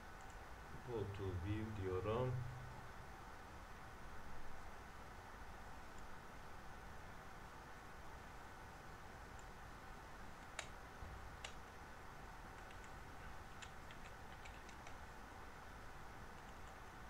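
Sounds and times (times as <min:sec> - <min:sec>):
computer keyboard clicking: 0:10.4 - 0:10.8, 0:11.4 - 0:11.6, 0:12.5 - 0:15.0.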